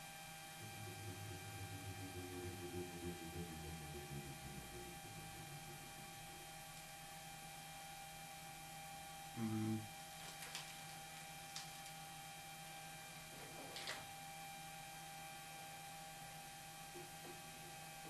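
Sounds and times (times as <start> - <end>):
short low hum: 0.0 - 10.0
electrical mains hum: 0.0 - 18.0.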